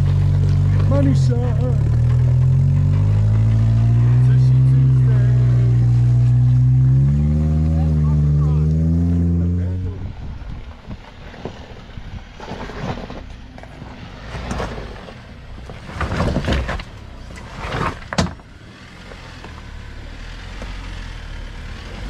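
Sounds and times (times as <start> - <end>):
engine humming: 0.0 - 22.0
rough scraping on rocks: 11.1 - 18.2.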